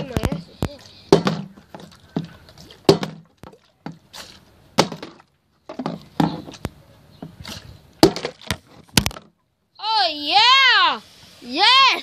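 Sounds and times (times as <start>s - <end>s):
bottle knocking on wooden decking: 2.9s - 3.3s.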